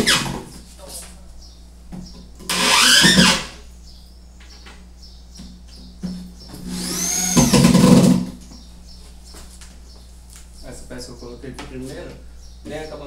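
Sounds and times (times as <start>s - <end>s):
electric drill driving screw: 2.5s - 3.6s, 6.6s - 8.3s.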